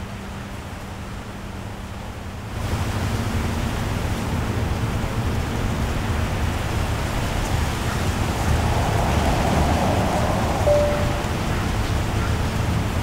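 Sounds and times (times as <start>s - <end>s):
steady rushing noise: 5.2s - 13.0s.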